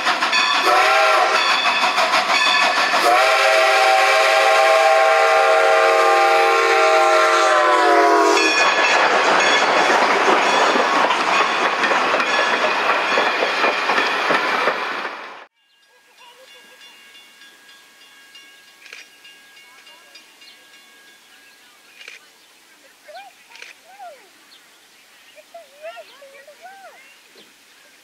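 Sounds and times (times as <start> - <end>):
train wheels rumbling and clicking: 0.0 - 4.5, 8.4 - 15.5
steam whistle blast: 0.6 - 1.6, 3.0 - 8.5.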